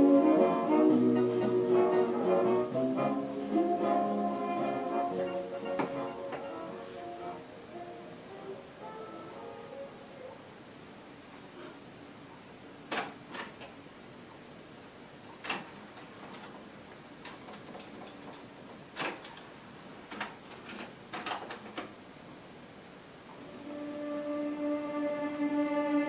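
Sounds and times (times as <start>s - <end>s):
faint tape hiss: 0.0s - 26.0s
cassette mechanism clicking and clunking: 15.4s - 19.5s.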